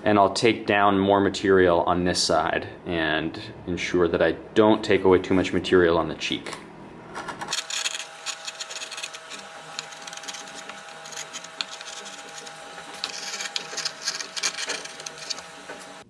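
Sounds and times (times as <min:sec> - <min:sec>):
carving gouge paring wood: 0:07.6 - 0:16.0.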